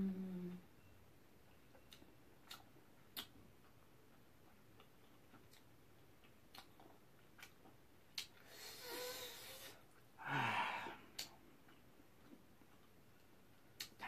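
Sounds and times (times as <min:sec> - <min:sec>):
man eating: 0:01.7 - 0:14.0
mouth clicks: 0:01.8 - 0:03.4
breathy sigh with low hum: 0:08.5 - 0:11.1.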